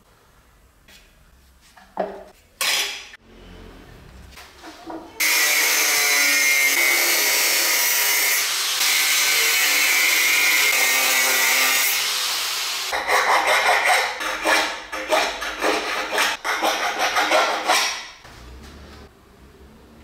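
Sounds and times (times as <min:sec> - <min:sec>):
angle grinder cutting steel: 0:05.2 - 0:17.8.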